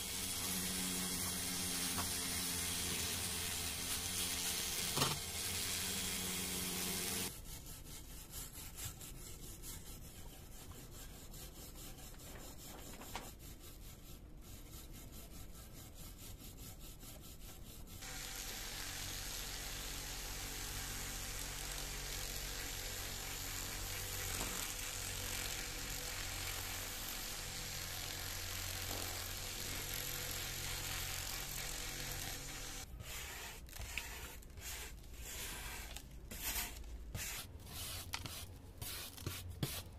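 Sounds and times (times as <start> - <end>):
hand wire brush scraping: 33.0 - 39.9.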